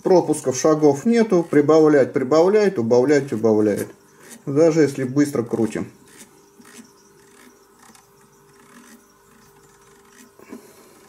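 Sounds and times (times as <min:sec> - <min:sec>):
rotary encoder clicking faintly: 0:00.1 - 0:11.0.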